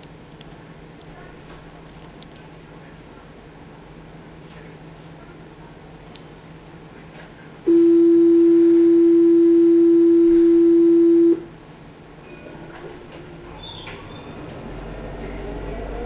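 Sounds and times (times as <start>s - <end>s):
faint interior hum: 0.0s - 16.0s
tram warning tone: 7.7s - 11.5s.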